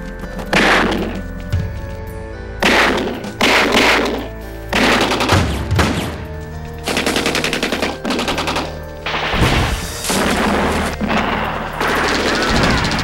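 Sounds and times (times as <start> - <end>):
automatic gunfire bursts: 2.6 - 6.2, 6.9 - 9.4.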